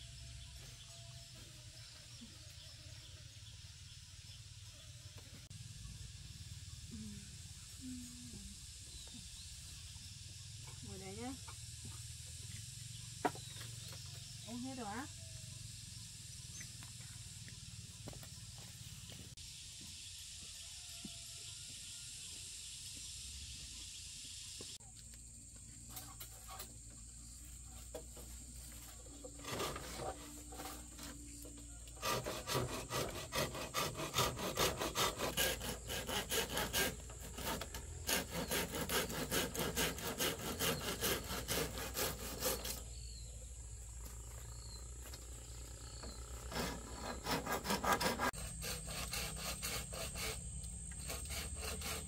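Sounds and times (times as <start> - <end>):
hand saw cutting bamboo: 28.8 - 43.0, 46.0 - 52.0.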